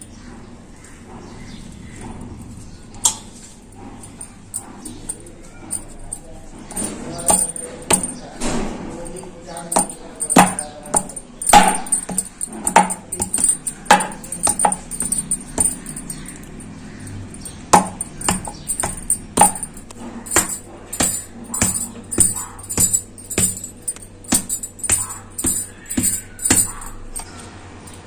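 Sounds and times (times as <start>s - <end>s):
sharp percussive beats: 5.7s - 8.2s, 9.0s - 16.6s, 17.4s - 27.2s.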